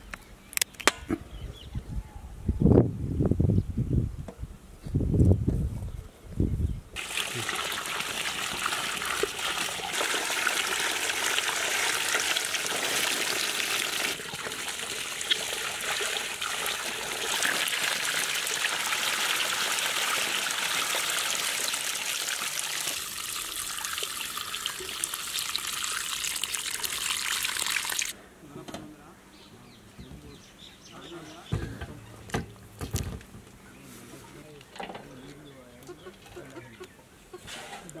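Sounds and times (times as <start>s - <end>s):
water gushing into metal basin: 7.0s - 28.1s.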